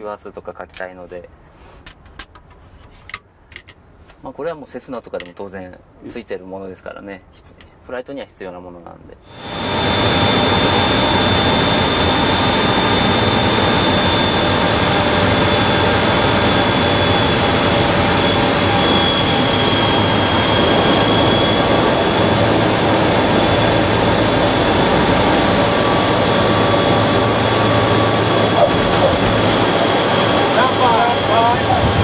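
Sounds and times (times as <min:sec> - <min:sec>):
high engine whine: 0:09.3 - 0:32.0
turboprop engine drone: 0:09.3 - 0:32.0.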